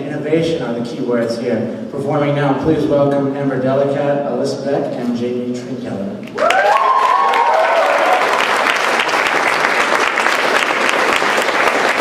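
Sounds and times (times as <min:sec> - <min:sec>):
person cheering: 0:06.4 - 0:08.5
audience applauding: 0:06.4 - 0:12.0.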